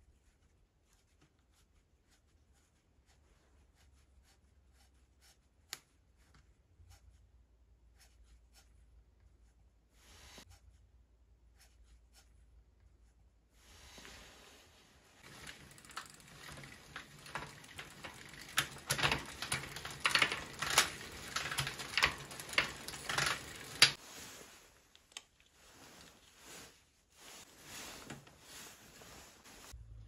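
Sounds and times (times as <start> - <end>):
bicycle drivetrain clicking: 15.2 - 24.0.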